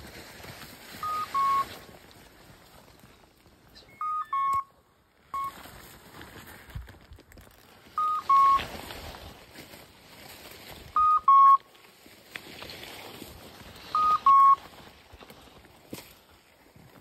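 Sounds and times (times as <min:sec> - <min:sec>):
two-note electronic beep: 0:01.0 - 0:01.7, 0:03.9 - 0:04.7, 0:08.0 - 0:08.6, 0:11.0 - 0:11.6, 0:14.0 - 0:14.6.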